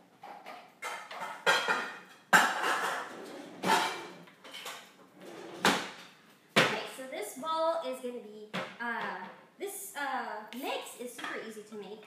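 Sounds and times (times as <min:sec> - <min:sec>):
dishes and bowls clattering: 0:00.2 - 0:06.1.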